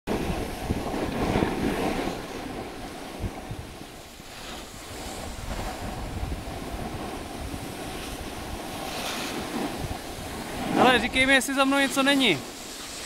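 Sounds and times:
wind buffeting microphone: 0.1 - 13.0
skis hissing over snow: 0.2 - 13.0.

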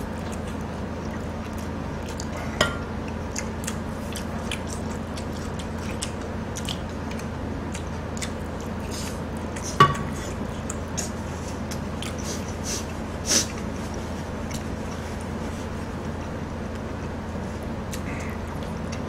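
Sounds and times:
faint eating sounds: 0.0 - 19.0
steady low hum: 0.0 - 19.0.

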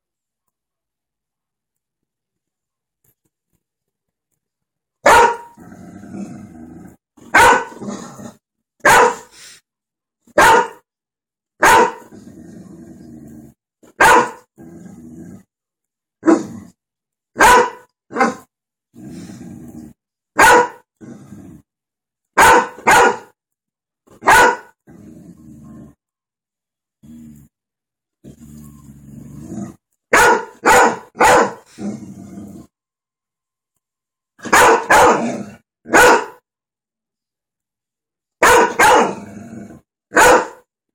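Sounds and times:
dog barking: 5.0 - 5.6, 7.3 - 7.8, 8.8 - 9.3, 10.3 - 10.8, 11.6 - 12.1, 14.0 - 14.5, 17.4 - 18.5, 20.4 - 20.8, 22.4 - 23.3, 24.2 - 24.8, 30.1 - 31.7, 34.4 - 36.4, 38.4 - 39.2, 40.1 - 40.6.

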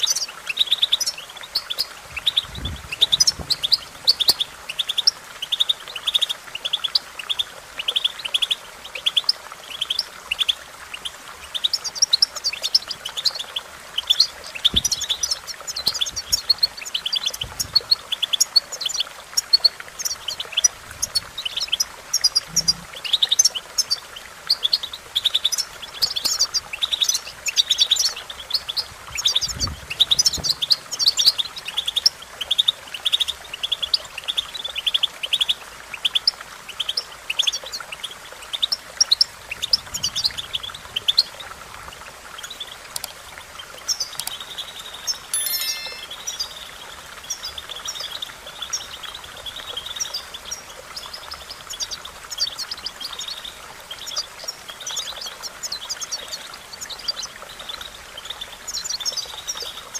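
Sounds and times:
goldfinch twittering song: 0.0 - 33.3, 42.4 - 50.6.

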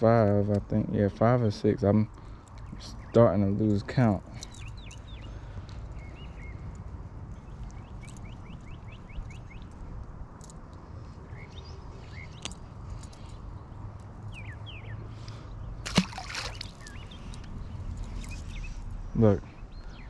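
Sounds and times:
birds chirping: 0.0 - 20.0
fish splashing into water: 15.8 - 17.0.

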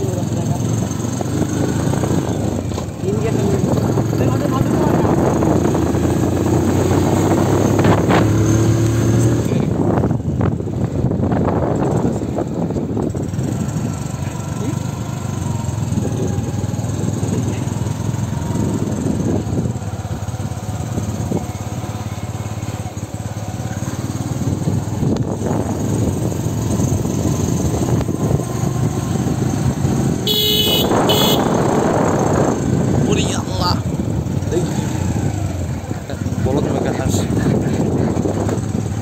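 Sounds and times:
vehicle engine and road noise: 0.0 - 39.0
vehicle horn: 30.2 - 31.9.

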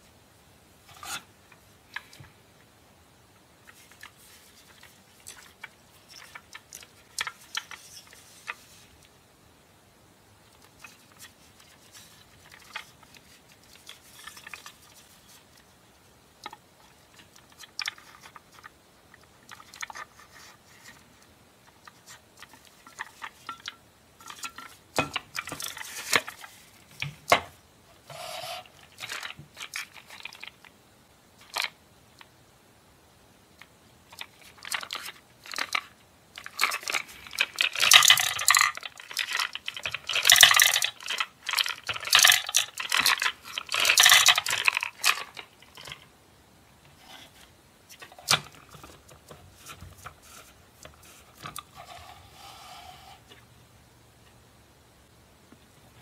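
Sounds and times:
candies rattling into plastic globe: 28.7 - 30.7, 34.2 - 46.0
plastic toy machine clicks: 34.1 - 46.0.

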